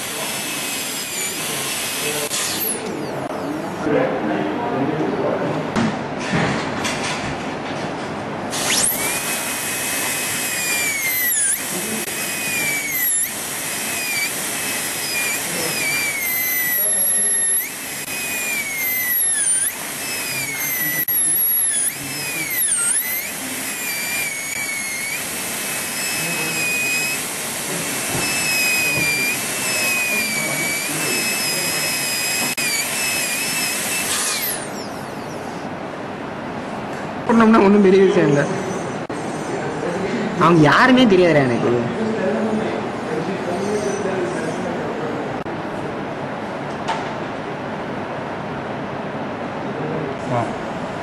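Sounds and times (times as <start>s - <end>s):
dental drill whine: 0.0s - 3.4s, 8.5s - 35.6s.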